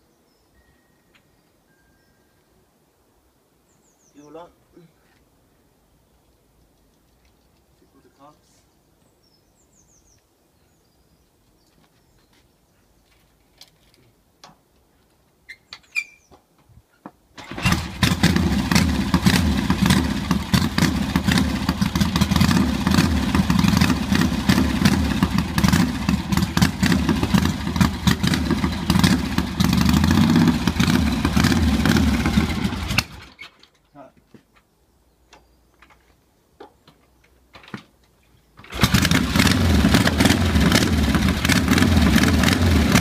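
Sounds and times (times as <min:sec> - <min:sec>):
faint clicks: 0:06.2 - 0:07.9
motorcycle engine idling: 0:17.4 - 0:33.2.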